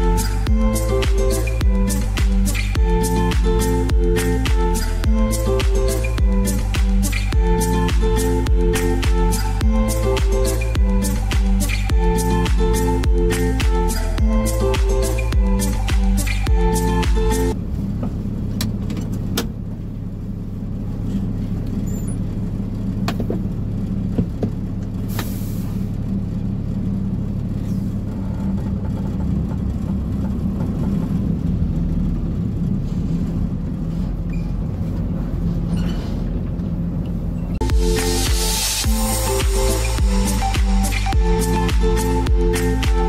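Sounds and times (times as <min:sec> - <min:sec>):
truck diesel engine running: 0:00.0 - 0:43.0
short hiss: 0:25.1 - 0:25.9.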